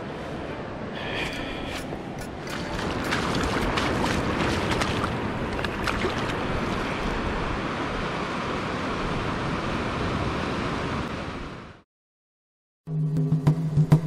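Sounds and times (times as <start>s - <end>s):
water splashes: 1.2s - 9.3s
shallow water washing over sand: 2.2s - 11.0s.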